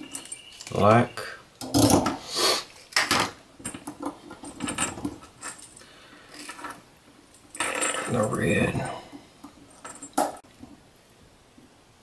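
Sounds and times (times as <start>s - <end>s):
metal parts clinking: 0.0s - 0.8s, 2.8s - 9.0s.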